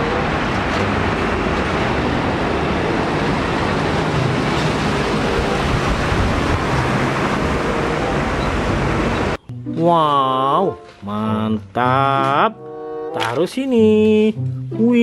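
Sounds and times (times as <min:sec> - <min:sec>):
trucks driving past: 0:00.0 - 0:09.7.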